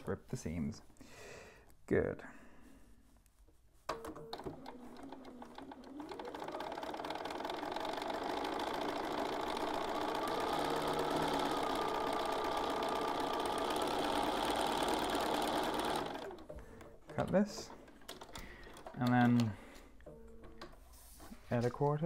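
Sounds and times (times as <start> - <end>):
sewing machine stitching: 3.9 - 19.6.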